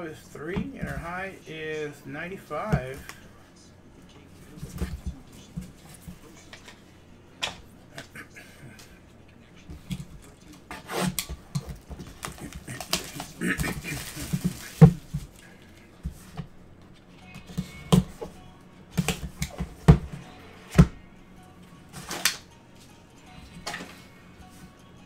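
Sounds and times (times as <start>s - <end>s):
rustling: 10.7s - 16.5s.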